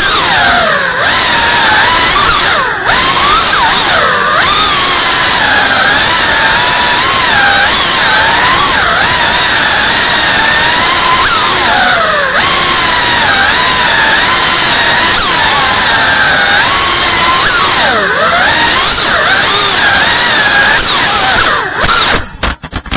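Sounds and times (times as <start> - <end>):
drone motors whining: 0.0 - 22.6.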